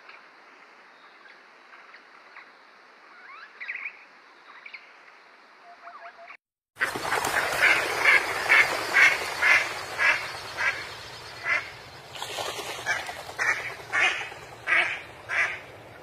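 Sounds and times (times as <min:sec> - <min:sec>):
flamingos honking: 0:06.8 - 0:12.0, 0:12.7 - 0:16.0
steady hiss: 0:07.3 - 0:16.0.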